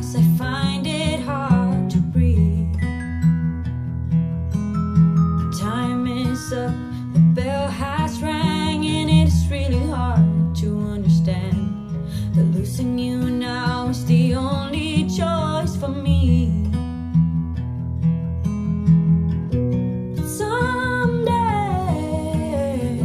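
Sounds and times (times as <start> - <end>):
person singing with vibrato: 0.0 - 3.1, 5.4 - 16.8, 20.3 - 23.0
guitar: 0.0 - 23.0.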